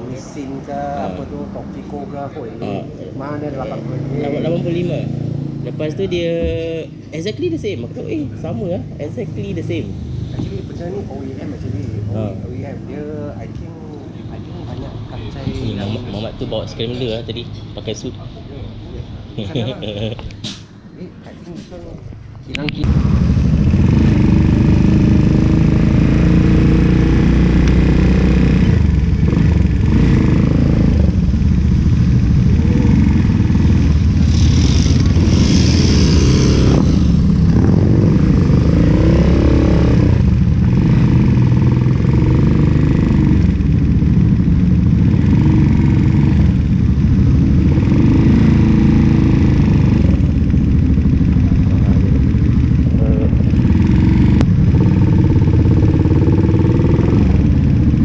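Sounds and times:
other motorcycles riding: 0:07.8 - 0:18.1, 0:22.6 - 0:58.0
motorcycle engine running: 0:22.8 - 0:58.0.

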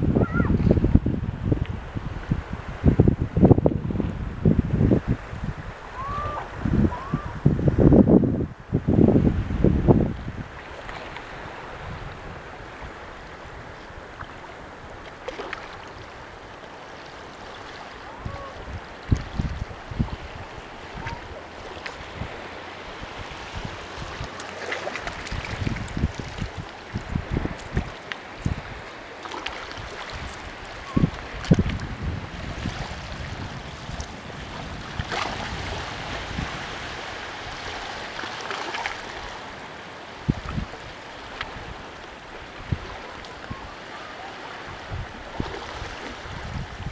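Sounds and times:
surf on a rocky shore: 0:00.0 - 0:46.9
wind: 0:00.0 - 0:46.9.

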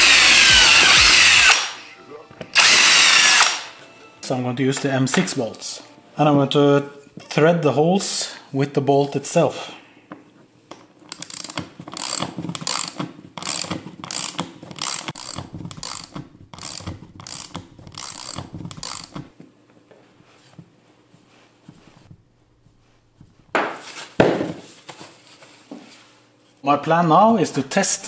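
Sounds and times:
socket ratchet clicking: 0:02.6 - 0:03.7, 0:11.1 - 0:19.3.

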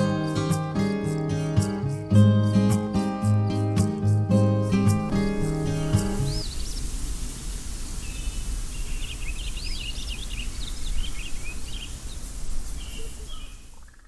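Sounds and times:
small birds chirping: 0:02.8 - 0:14.0.

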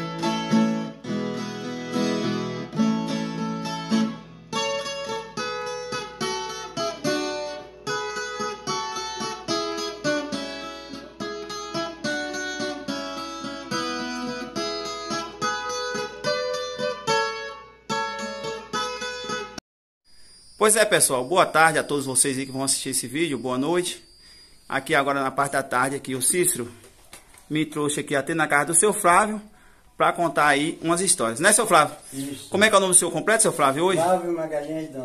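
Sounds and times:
acoustic guitar plucked notes: 0:00.0 - 0:19.6.

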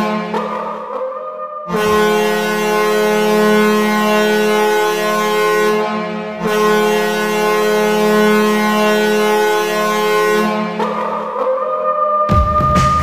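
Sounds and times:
goal horn blast: 0:00.0 - 0:00.8, 0:01.7 - 0:11.0.

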